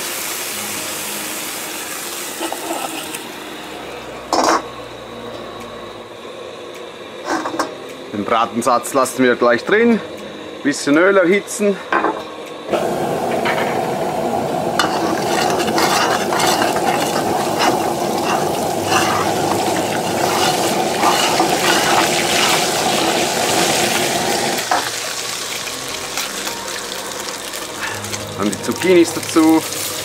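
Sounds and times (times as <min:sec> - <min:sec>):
oil sizzling in wok: 0:00.0 - 0:04.8, 0:12.7 - 0:30.0
gas burner roaring: 0:00.0 - 0:30.0
spatula scraping metal wok: 0:02.4 - 0:03.1, 0:14.8 - 0:23.1.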